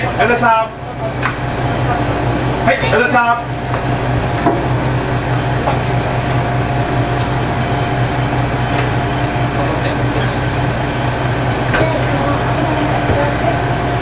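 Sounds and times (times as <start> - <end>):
diesel engine idling drone: 0.0 - 14.0
steady whine: 0.0 - 14.0.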